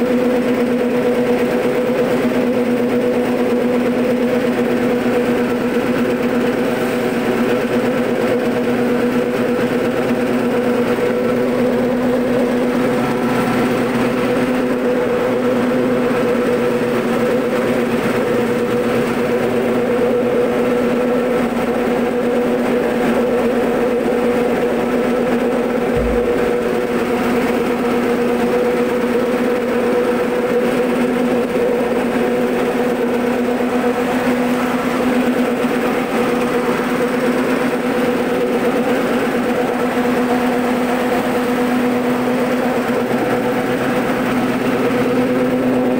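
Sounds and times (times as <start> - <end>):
machine motor humming: 25.6 - 28.4
low bump: 25.9 - 27.0.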